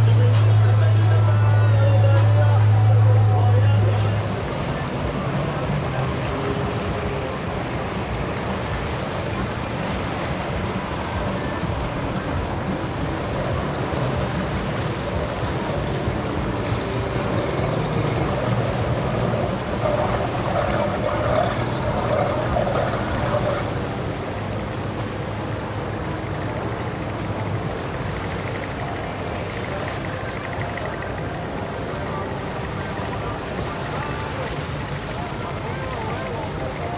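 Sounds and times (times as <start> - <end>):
outboard motorboat engines running: 0.0 - 36.9
water and waves washing: 0.0 - 36.9.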